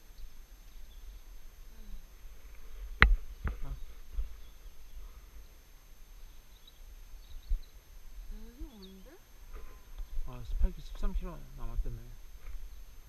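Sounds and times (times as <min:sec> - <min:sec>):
wind buffeting microphone: 0:00.8 - 0:05.6, 0:06.3 - 0:13.0.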